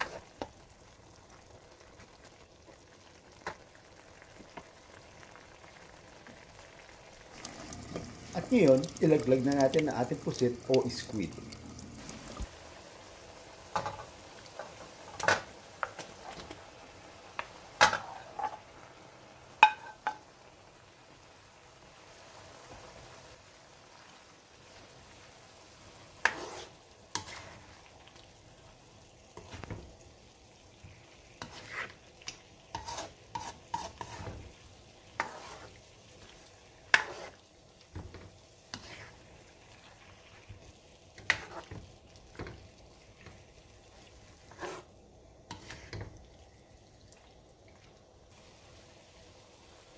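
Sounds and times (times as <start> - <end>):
spatula scraping a wok: 0.0 - 0.5, 17.8 - 18.7, 26.0 - 28.0, 30.9 - 42.6, 43.2 - 46.1
faint sizzle: 0.0 - 49.9.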